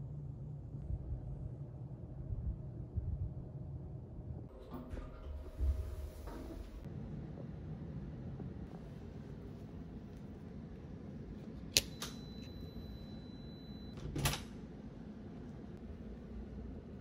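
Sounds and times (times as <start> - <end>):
locker lock clicks: 11.7 - 12.2.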